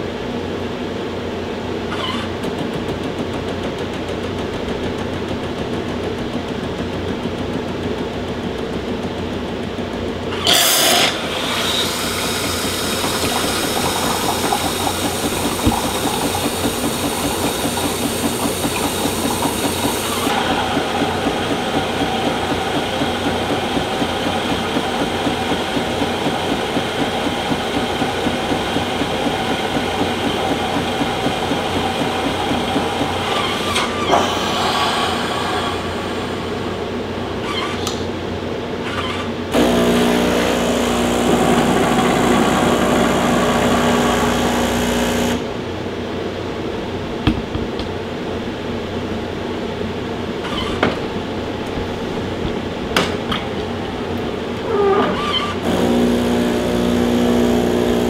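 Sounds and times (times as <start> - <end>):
pump pulsing: 1.7 - 38.1, 38.8 - 45.8, 47.0 - 58.0
steam hissing: 10.3 - 37.6
espresso machine humming: 10.4 - 36.4, 39.5 - 45.6, 55.6 - 58.0.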